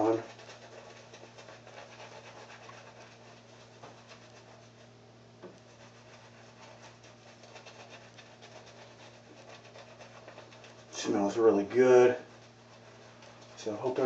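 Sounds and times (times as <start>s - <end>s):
shaving brush rubbing on skin: 0.0s - 4.9s, 5.5s - 14.0s
steady low hum: 0.0s - 14.0s.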